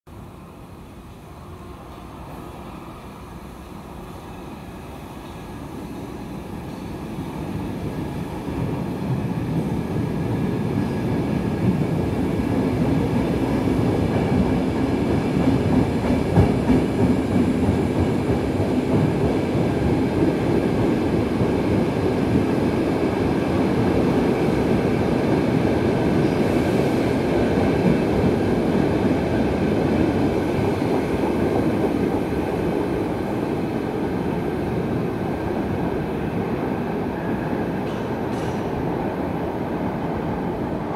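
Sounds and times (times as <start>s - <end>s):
train wheels on rails: 0.3s - 40.9s.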